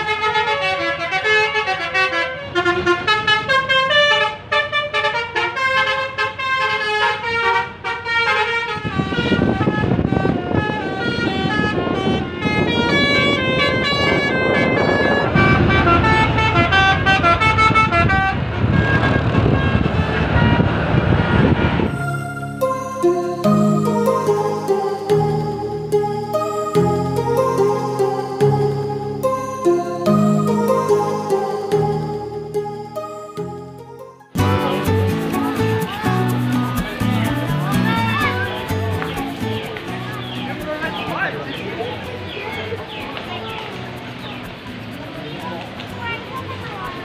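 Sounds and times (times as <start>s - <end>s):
multi-tone bus horns: 0.0s - 35.9s
bus engine and road noise: 0.0s - 47.0s.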